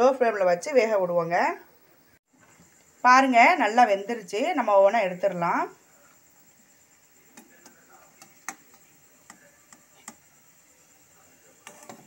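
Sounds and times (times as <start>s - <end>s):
oil popping while deep-frying: 7.2s - 10.5s.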